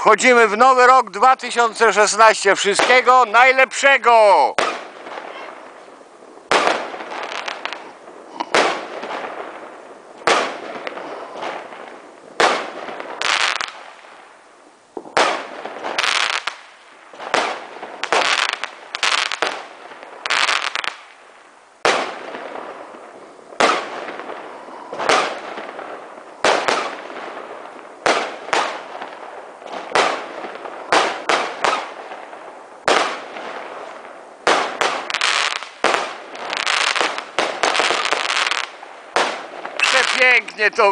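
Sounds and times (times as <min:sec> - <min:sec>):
firework shells bursting: 0:04.5 - 0:14.0, 0:21.8 - 0:40.9.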